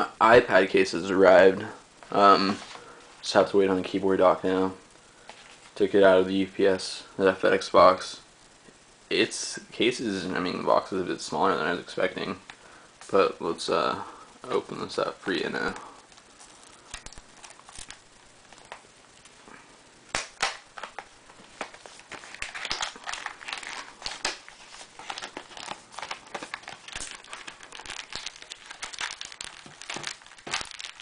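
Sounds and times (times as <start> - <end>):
packaging crinkling and rustling: 15.3 - 19.4, 20.1 - 31.0.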